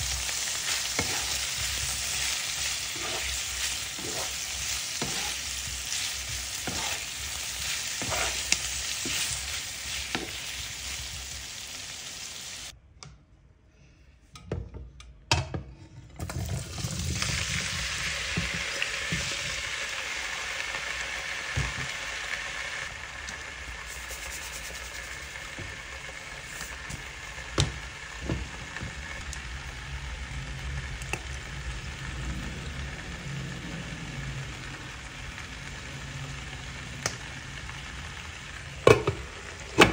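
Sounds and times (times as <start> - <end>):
meat and onion sizzling in pan: 0.0 - 12.7, 16.4 - 39.9
potatoes frying: 0.0 - 12.7, 16.2 - 39.9
wooden spatula scraping pan: 0.7 - 10.4.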